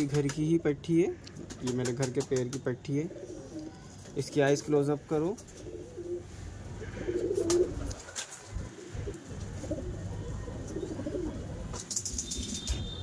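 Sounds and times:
pigeons cooing: 0:03.0 - 0:04.1, 0:05.4 - 0:12.8.

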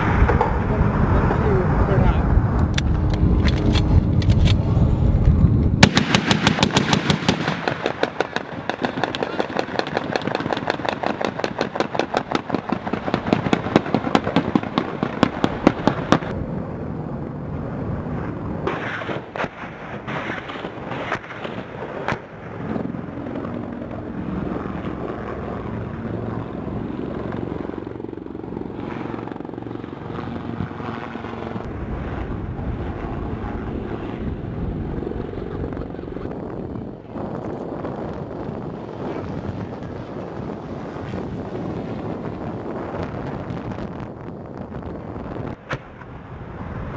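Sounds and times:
helicopter flying overhead: 0:00.0 - 0:46.9
rotary cannon fire: 0:05.8 - 0:16.3, 0:18.6 - 0:22.6.

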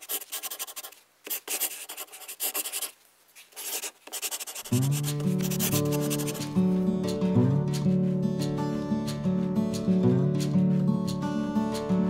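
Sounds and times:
pen scraping over paper: 0:00.0 - 0:06.4
music: 0:04.7 - 0:12.0.

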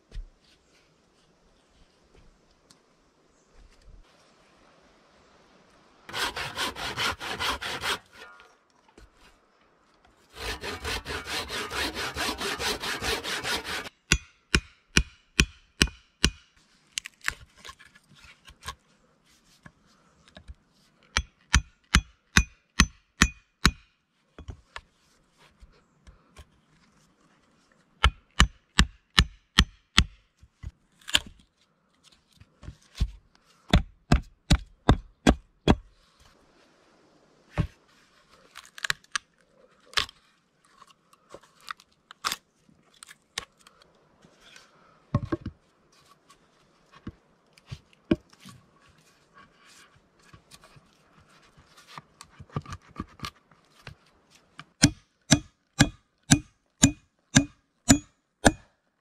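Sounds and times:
hand saw cutting log: 0:06.1 - 0:08.4, 0:10.3 - 0:14.0, 0:54.8 - 0:58.6
sharp wooden knocks of chopping: 0:13.2 - 0:16.5, 0:28.0 - 0:30.2, 0:33.7 - 0:35.9, 0:54.8 - 0:58.7.

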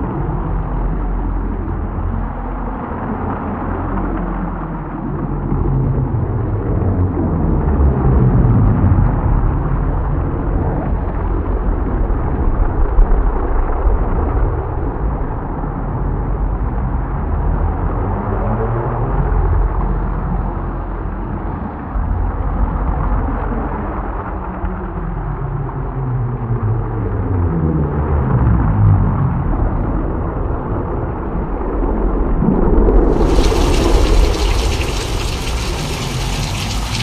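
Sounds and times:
thunder rumble: 0:32.6 - 0:37.0
dense noisy wash: 0:33.0 - 0:37.0.

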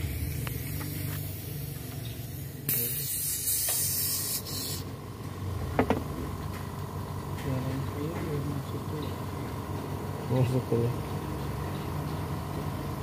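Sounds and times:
aerosol spray hissing: 0:00.0 - 0:04.9.

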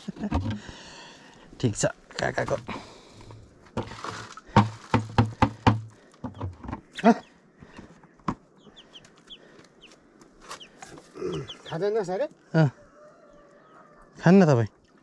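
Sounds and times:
hen clucking: 0:06.3 - 0:12.0.

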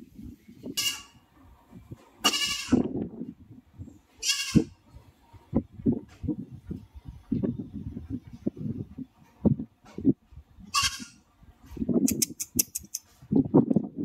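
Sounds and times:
goat bleating: 0:02.2 - 0:02.8, 0:04.2 - 0:04.7.

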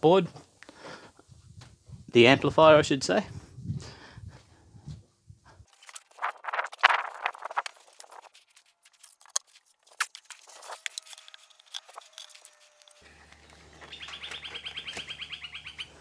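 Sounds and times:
bird trilling: 0:13.0 - 0:16.0.

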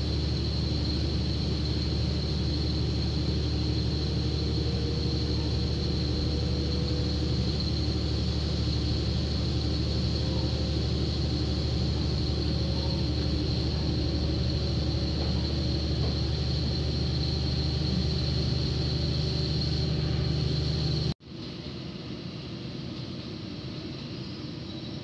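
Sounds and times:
diesel engine droning: 0:00.0 - 0:21.2
train running on rails: 0:00.0 - 0:25.0.

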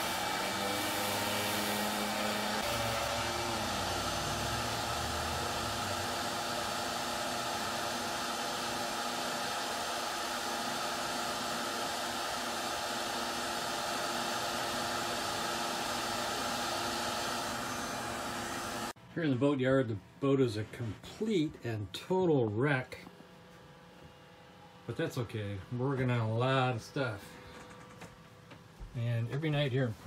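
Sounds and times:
sander spinning down: 0:00.0 - 0:19.0
shop vacuum running: 0:00.0 - 0:30.0.

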